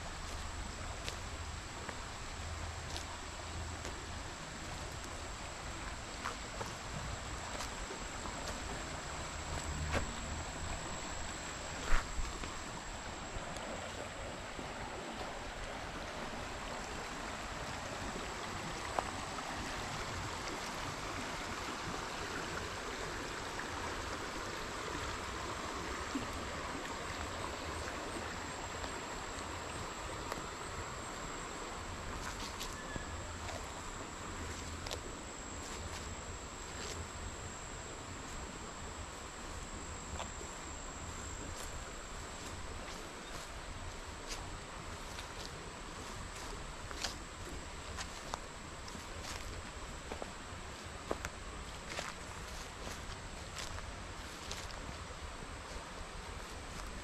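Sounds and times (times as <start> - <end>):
high insect tone: 0.0 - 57.0
stream water flowing: 0.0 - 57.0.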